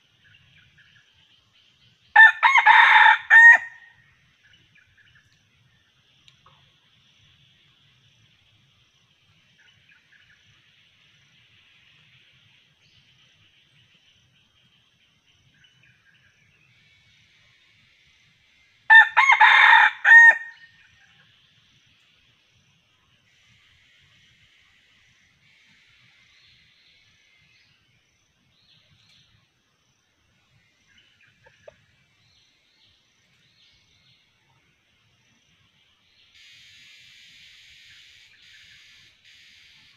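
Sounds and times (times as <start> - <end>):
faint high insect drone: 0.0 - 39.9
rooster crowing: 2.2 - 3.9, 18.9 - 20.6.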